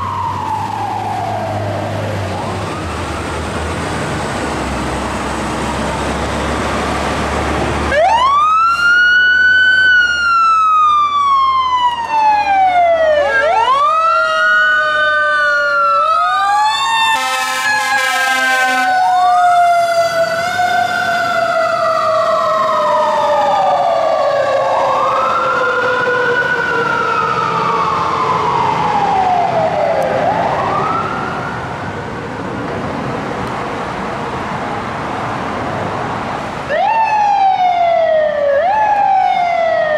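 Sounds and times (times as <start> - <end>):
diesel engine rumbling: 0.0 - 14.0
fire truck siren wailing: 0.0 - 32.9, 36.4 - 39.9
air horn blast: 17.1 - 19.0.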